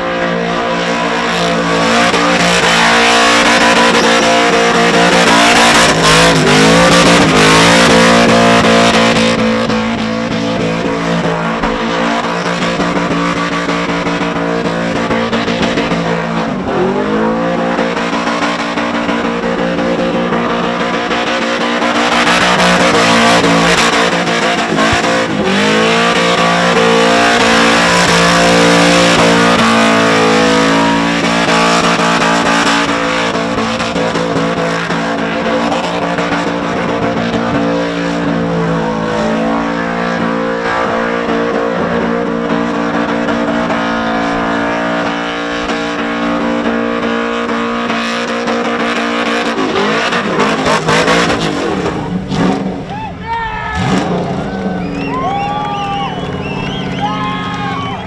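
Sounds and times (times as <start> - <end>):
engine revving at high revs: 0.0 - 52.8, 53.8 - 55.1
tyres squealing: 0.5 - 7.2, 52.9 - 58.0.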